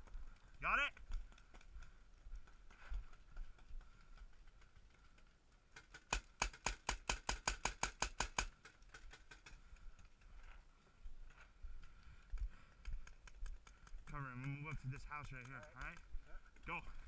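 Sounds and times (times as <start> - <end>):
paintball marker rapid firing: 5.8 - 9.5, 13.0 - 16.1.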